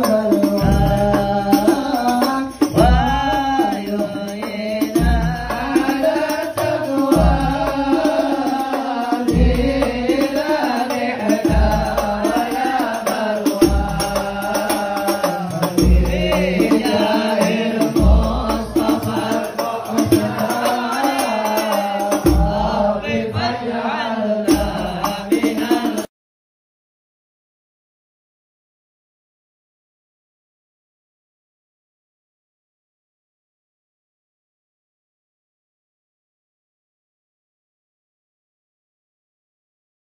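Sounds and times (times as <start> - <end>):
men chanting in unison: 0.0 - 26.1.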